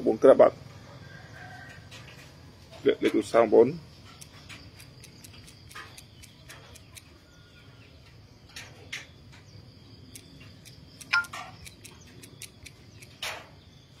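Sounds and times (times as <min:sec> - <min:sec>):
insects chirping: 0:00.0 - 0:14.0
short ticks and chirps: 0:04.1 - 0:07.3, 0:08.5 - 0:13.3
sharp loud chirp: 0:10.0 - 0:13.3.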